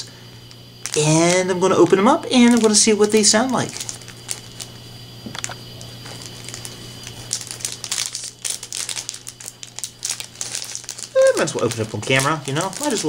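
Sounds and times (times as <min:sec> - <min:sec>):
low steady hum: 0:00.0 - 0:13.0
plastic packet crinkling: 0:00.0 - 0:13.0.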